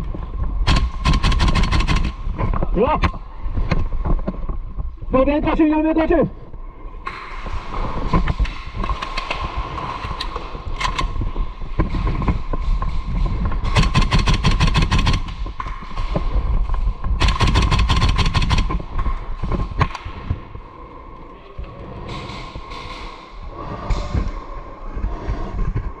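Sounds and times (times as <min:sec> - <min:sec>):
airsoft gun full-auto bursts: 0:00.7 - 0:02.2, 0:13.8 - 0:15.4, 0:17.2 - 0:18.7.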